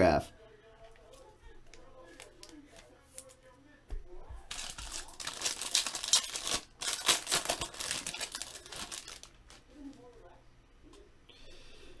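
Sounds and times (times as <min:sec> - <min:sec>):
foil wrapper tearing and crinkling: 0:04.5 - 0:10.0.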